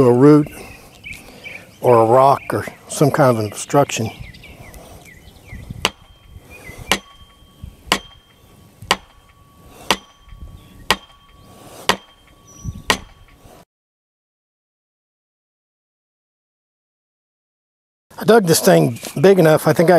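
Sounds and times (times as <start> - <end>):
sledgehammer striking wood: 5.8 - 6.1, 6.9 - 7.3, 7.9 - 10.2, 10.9 - 11.2, 11.8 - 12.2, 12.9 - 13.2
steel post ringing: 5.8 - 13.6.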